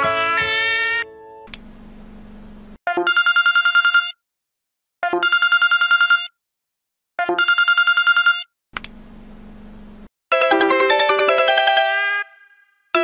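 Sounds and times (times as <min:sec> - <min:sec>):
click: 0:01.5 - 0:01.7, 0:08.8 - 0:09.0
trilling phone ringtone: 0:02.9 - 0:04.2, 0:05.0 - 0:06.4, 0:07.2 - 0:08.5, 0:10.3 - 0:12.1.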